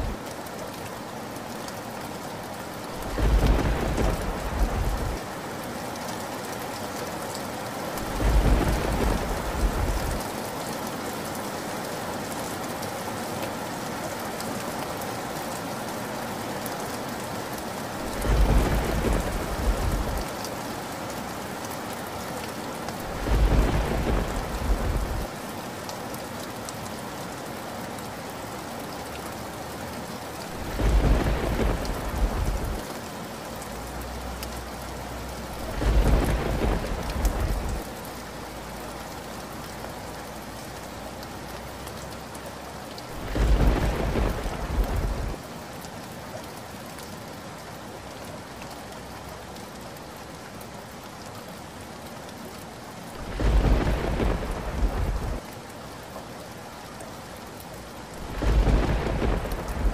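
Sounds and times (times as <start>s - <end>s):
steady rain: 0.0s - 59.9s
deep rolls of thunder: 3.0s - 5.2s, 8.1s - 10.2s, 18.2s - 20.2s, 23.2s - 25.3s, 30.6s - 32.8s, 35.6s - 37.8s, 43.2s - 45.4s, 53.2s - 55.4s, 58.2s - 59.9s.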